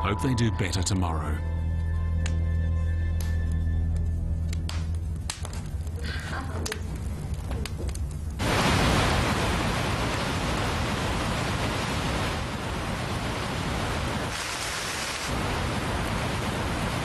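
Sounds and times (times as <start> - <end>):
heavy rain: 8.4 - 17.0.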